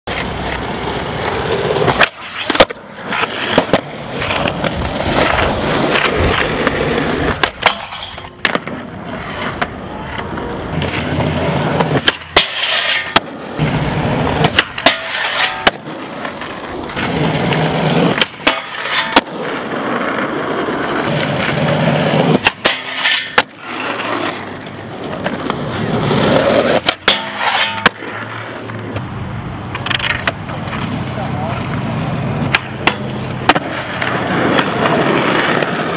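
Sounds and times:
skateboard clacking: 0.1 - 29.0, 29.6 - 35.9
skateboard wheels rolling on concrete: 0.1 - 35.9
trucks grinding on metal rail: 10.7 - 29.0.

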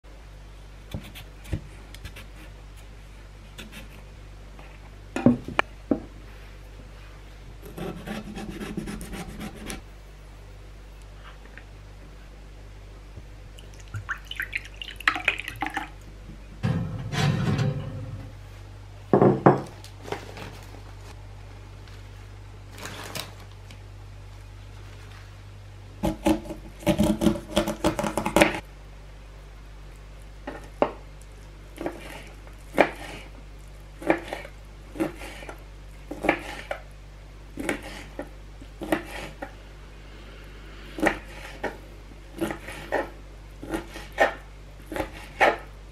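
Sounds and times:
faint low hum: 0.0 - 45.9
dishware clunks: 16.6 - 18.3
salad leaves rustling: 19.8 - 25.5.

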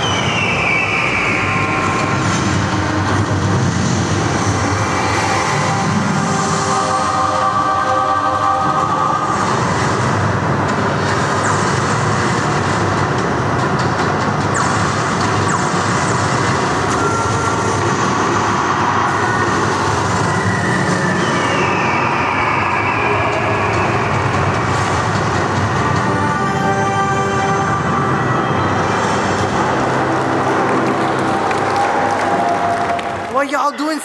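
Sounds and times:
faint falling whistle: 0.0 - 2.3, 20.3 - 24.4.

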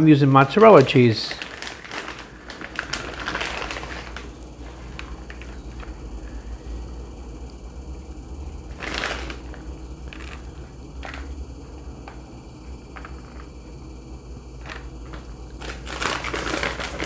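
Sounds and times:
low steady hum: 0.0 - 17.0
shredded cheese rustling: 0.4 - 6.4, 8.7 - 11.3, 14.6 - 17.0.

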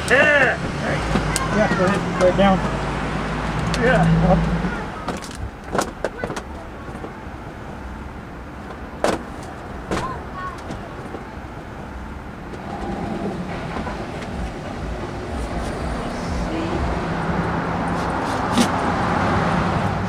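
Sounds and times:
street traffic: 0.0 - 20.0
vehicle rumble: 0.0 - 20.0.

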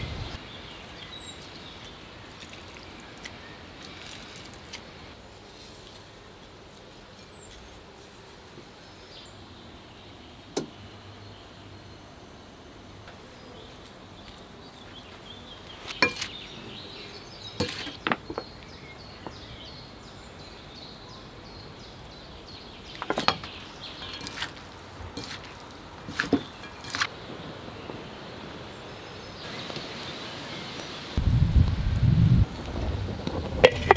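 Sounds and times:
faint outdoor hiss: 0.0 - 33.9
utensils knocking on bowl and board: 17.6 - 18.4.

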